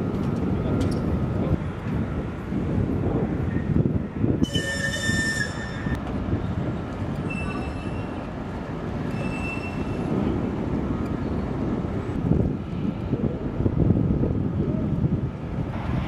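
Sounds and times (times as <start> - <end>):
wind and machinery rumble: 0.0 - 16.0
loud high-pitched squeal: 4.4 - 6.0, 7.2 - 8.2, 9.1 - 10.1.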